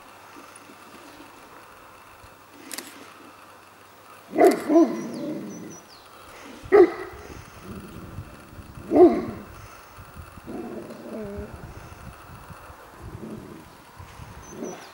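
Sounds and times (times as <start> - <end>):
dog barking: 4.3 - 5.2, 6.7 - 7.2, 8.9 - 9.4.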